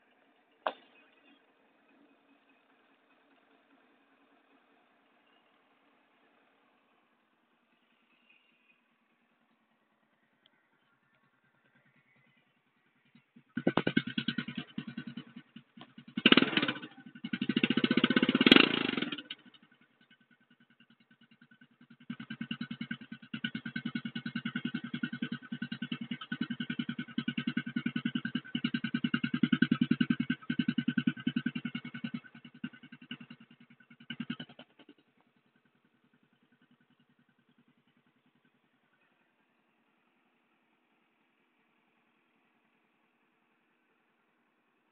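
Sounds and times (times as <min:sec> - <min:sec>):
motorcycle engine revving: 0:07.8 - 0:39.0.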